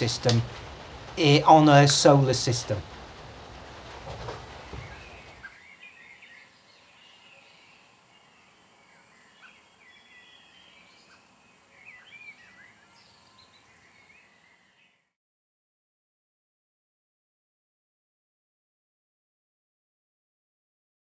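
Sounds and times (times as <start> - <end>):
low outdoor hiss: 0.0 - 15.2
small birds chirping: 4.2 - 15.1.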